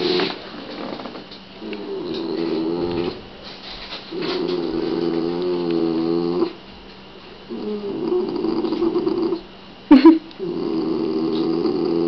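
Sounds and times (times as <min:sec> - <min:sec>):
dog growling: 0:01.6 - 0:03.2, 0:04.1 - 0:06.6, 0:07.5 - 0:09.4, 0:10.4 - 0:12.0.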